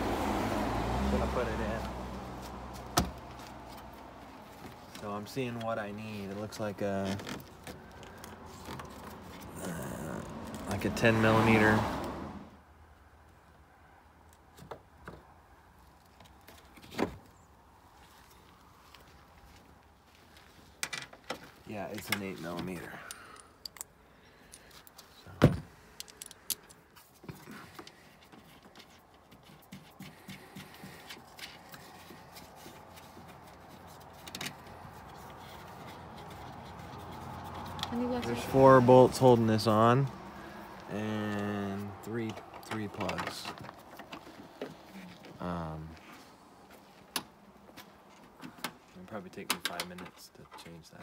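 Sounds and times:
hand rustling and scraping on felt: 0:28.4 - 0:38.4.

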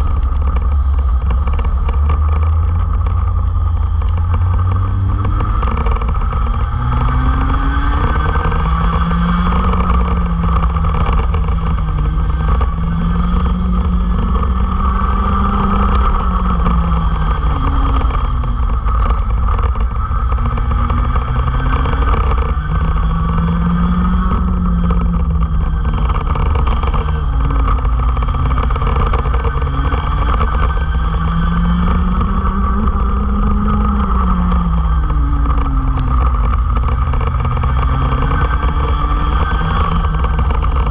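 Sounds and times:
kart engines at full throttle: 0:00.0 - 0:40.9
low rumble: 0:00.0 - 0:40.9.

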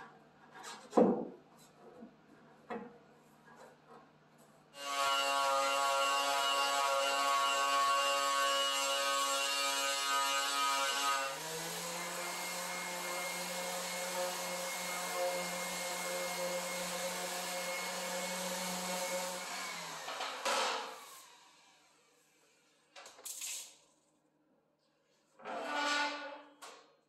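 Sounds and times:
sander running on metal: 0:04.8 - 0:22.0.

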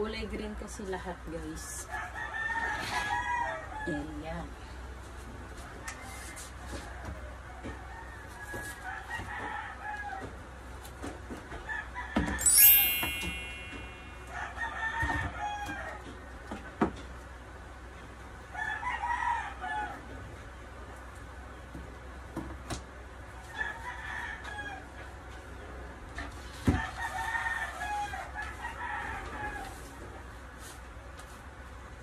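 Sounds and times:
loud shrill sound: 0:12.4 - 0:14.4.

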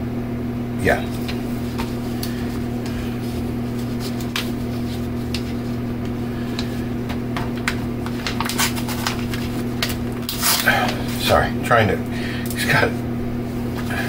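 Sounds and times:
low electrical hum: 0:00.0 - 0:14.0
package clicks and rustles: 0:04.0 - 0:11.1.

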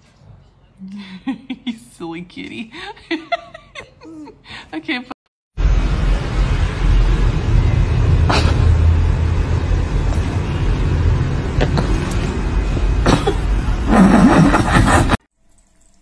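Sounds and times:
loud steady rumbling: 0:05.6 - 0:15.2.

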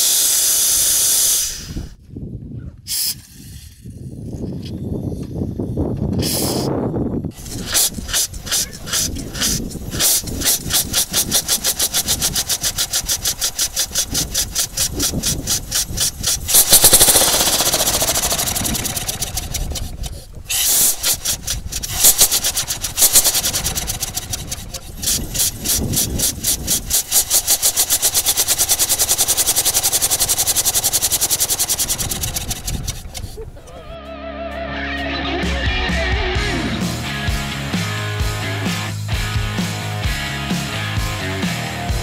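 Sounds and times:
steam engine exhaust chuffing: 0:07.3 - 0:33.6.

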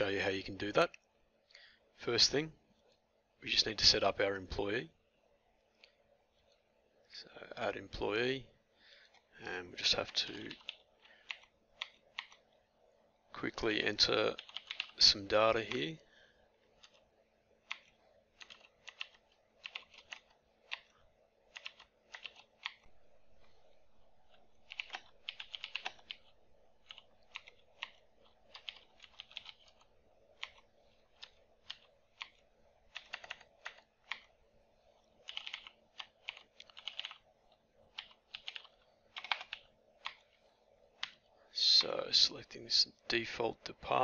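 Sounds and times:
keyboard typing: 0:09.9 - 0:12.6, 0:14.0 - 0:15.9, 0:16.8 - 0:41.9.

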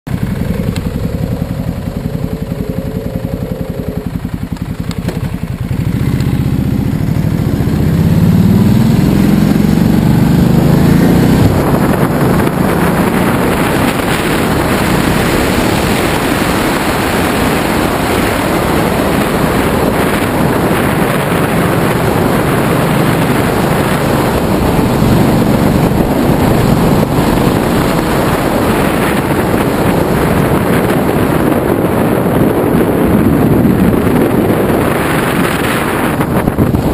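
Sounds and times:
motorcycle engine: 0:00.1 - 0:36.9
wind rushing over microphone: 0:00.1 - 0:36.9.

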